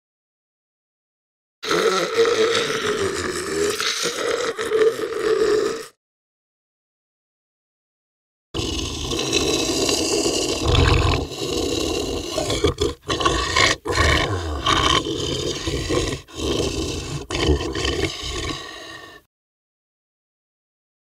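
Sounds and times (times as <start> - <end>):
monster growl: 1.6 - 6.0, 8.6 - 19.3.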